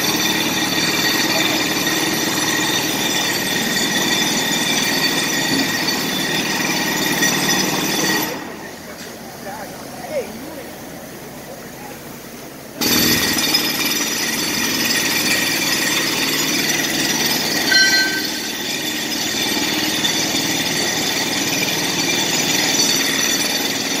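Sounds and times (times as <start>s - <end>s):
jackhammer hammering: 12.8s - 24.0s.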